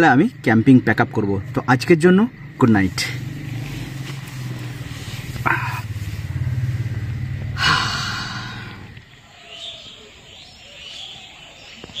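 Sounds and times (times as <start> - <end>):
motor engine running: 2.3 - 9.1.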